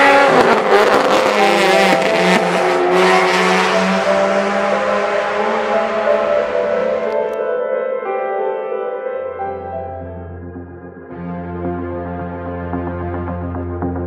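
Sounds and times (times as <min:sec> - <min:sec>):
race car engines droning: 0:00.0 - 0:07.4.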